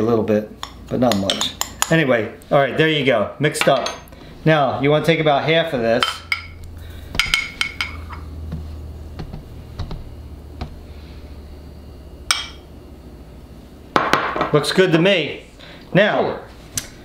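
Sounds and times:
low steady hum: 0.0 - 17.0
glass bowls clinking: 3.6 - 4.1, 6.0 - 6.6, 7.2 - 8.3, 12.2 - 12.7.

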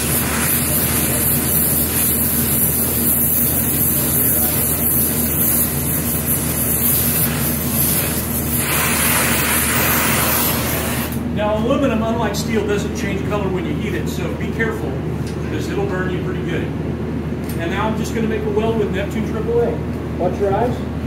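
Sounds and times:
torch flame hissing: 0.0 - 11.2.

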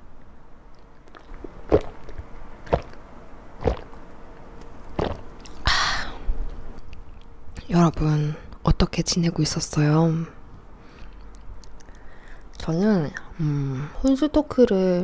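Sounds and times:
person gulping beer: 1.0 - 3.0, 3.6 - 4.0, 5.0 - 5.6.

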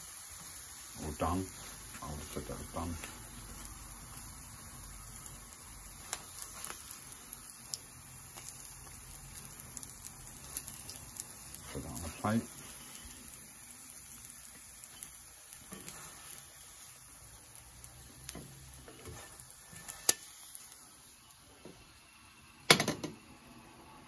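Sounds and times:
oil sizzling in a pan: 0.0 - 24.0.

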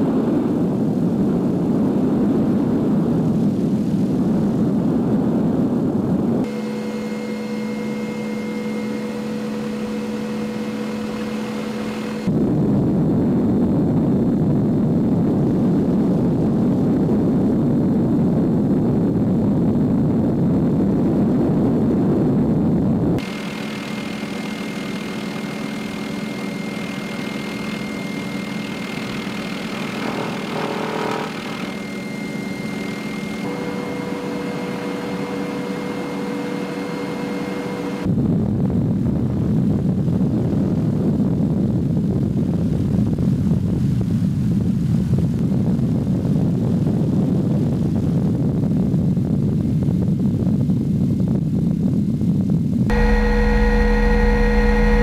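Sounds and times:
helicopter engine and rotors droning: 6.4 - 12.6, 23.2 - 38.1, 52.9 - 55.0
loud rushing noise: 52.9 - 55.0.

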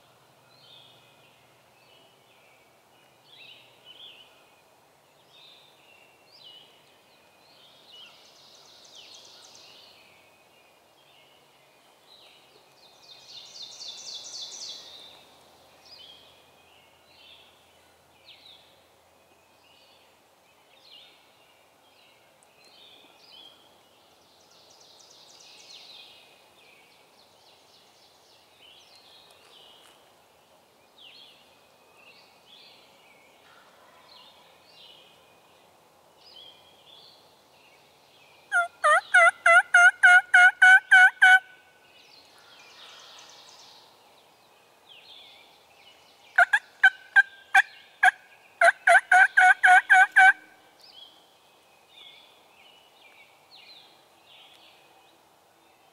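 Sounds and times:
faint songbird chirping: 0.0 - 55.9
wild turkey yelps: 38.5 - 41.4, 46.4 - 50.4.

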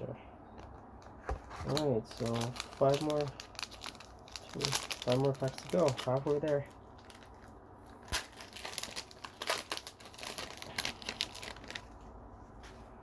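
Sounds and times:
foil wrapper crinkling and tearing: 1.6 - 12.0.

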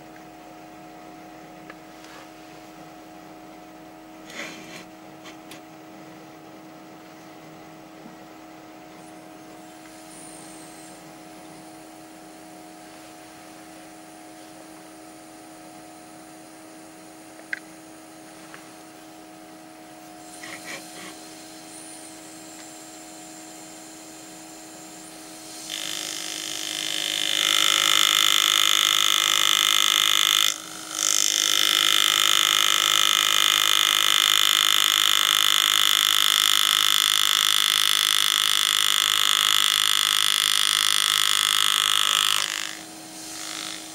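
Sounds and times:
air graver buzzing: 4.2 - 5.6, 20.0 - 43.9.

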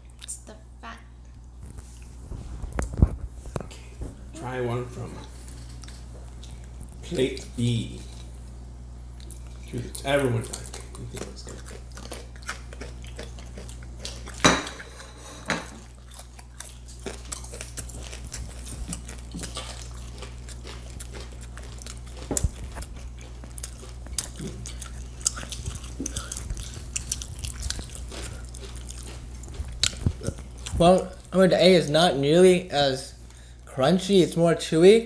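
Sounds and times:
crisp bacon being chewed: 1.2 - 3.9, 5.2 - 34.4
dishes clinking: 14.4 - 15.8.

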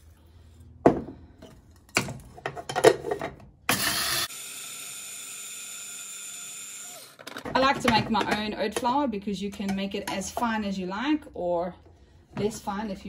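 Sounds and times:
electric grinder burst: 3.7 - 7.2.

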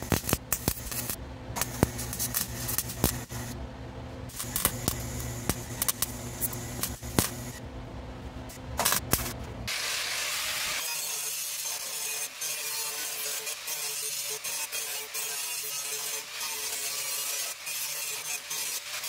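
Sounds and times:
welding crackles: 0.0 - 3.6, 4.3 - 7.6, 8.5 - 9.9, 10.6 - 19.0
low hum: 0.0 - 9.7.

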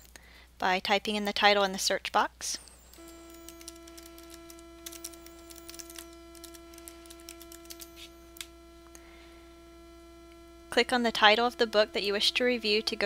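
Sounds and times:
electrical hum: 2.3 - 13.0
keyboard keystrokes: 2.9 - 8.5.

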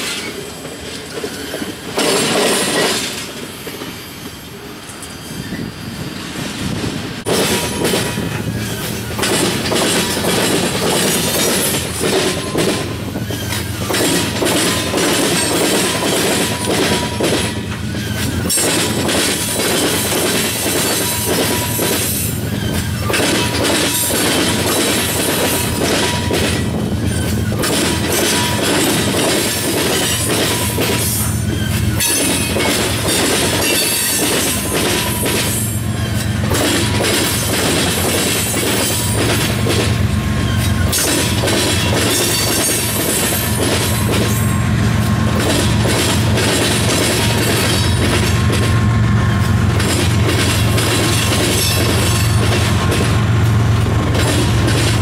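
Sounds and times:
train wheels clacking over rail joints: 0.0 - 5.2, 6.6 - 55.0
wheel squeal: 11.2 - 18.8, 20.9 - 25.0, 25.9 - 37.4, 40.4 - 44.6.

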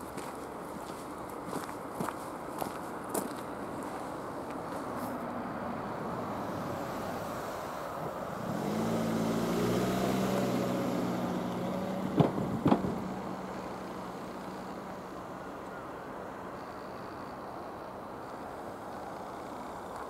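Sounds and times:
vehicle engine hum: 0.0 - 20.0
sharp knocks: 12.1 - 13.1.

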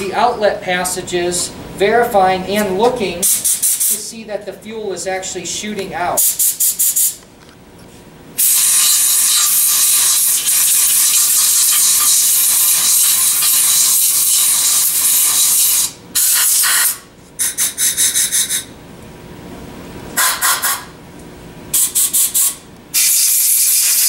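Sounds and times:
compressed air blow gun hissing: 8.4 - 17.0, 21.8 - 24.0.

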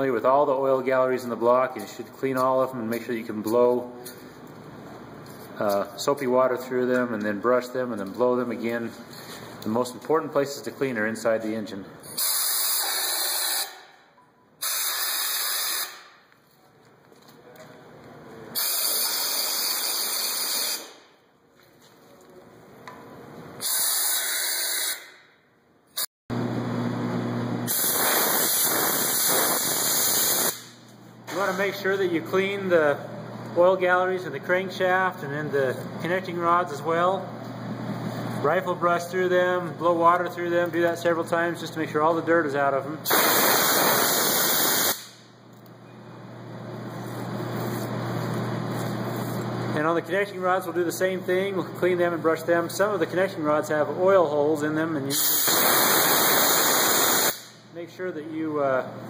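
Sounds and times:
air nozzle spraying hiss: 12.2 - 13.8, 14.6 - 16.1, 18.6 - 21.0, 23.6 - 25.1, 27.7 - 30.7, 43.1 - 45.2, 55.1 - 57.6
compressed air blow gun hissing: 14.6 - 16.0, 27.7 - 30.7, 55.2 - 57.6
steady low hum: 30.6 - 43.1.

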